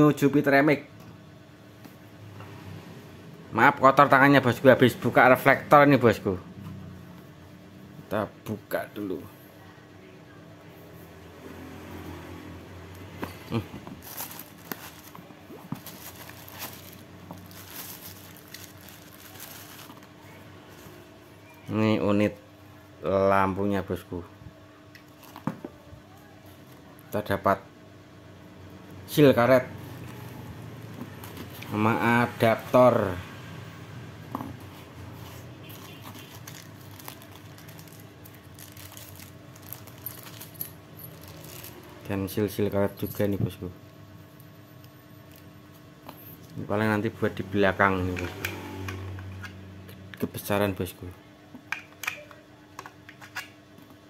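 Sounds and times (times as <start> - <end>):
box packaging rustling: 14.0 - 20.2, 34.7 - 41.9
plastic bag crinkling: 14.0 - 20.2, 35.7 - 42.1.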